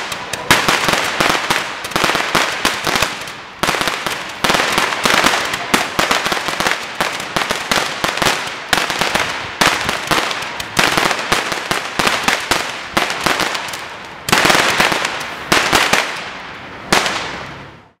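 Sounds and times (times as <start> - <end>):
firework shots popping: 0.0 - 17.6
firework stars crackling: 0.0 - 18.0.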